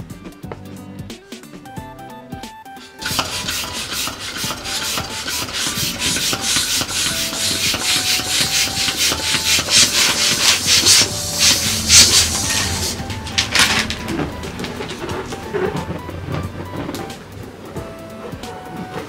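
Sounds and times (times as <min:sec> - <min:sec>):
faint background music: 0:00.0 - 0:19.0
loud rasping and rubbing strokes: 0:02.8 - 0:16.4.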